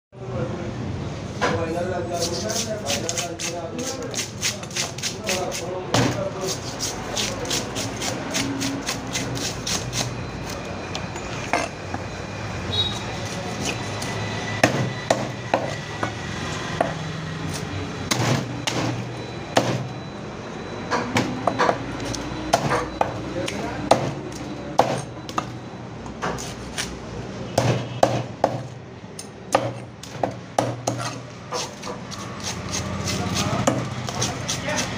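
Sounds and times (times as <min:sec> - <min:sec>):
knife chopping on wooden block: 0:14.6 - 0:16.2, 0:18.1 - 0:19.9, 0:23.9 - 0:24.2, 0:24.8 - 0:25.4, 0:27.6 - 0:28.7, 0:29.5 - 0:34.9.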